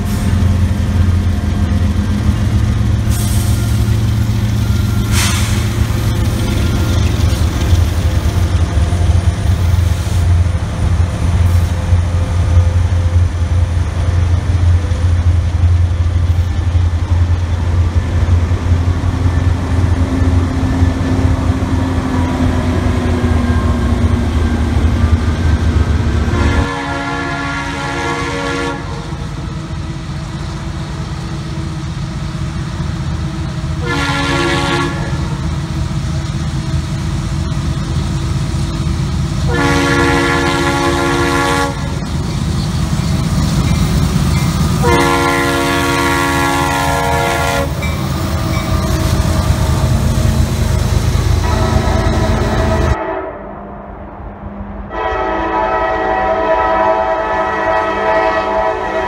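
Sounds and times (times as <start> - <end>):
diesel locomotives rumbling: 0.0 - 59.0
locomotive air horn: 26.2 - 29.1, 33.8 - 35.3, 39.5 - 42.0, 44.8 - 47.8, 51.4 - 53.6, 54.9 - 59.0.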